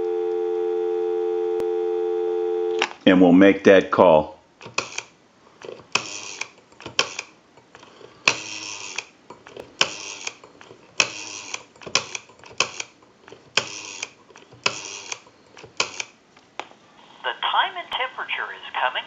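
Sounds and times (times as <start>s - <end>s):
rotary telephone dial whirring: 4.6s - 16.2s.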